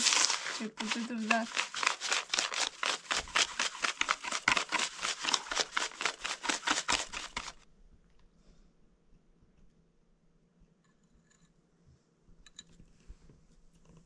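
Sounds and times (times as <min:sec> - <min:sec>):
hand whisk beating eggs in bowl: 0:00.0 - 0:07.6.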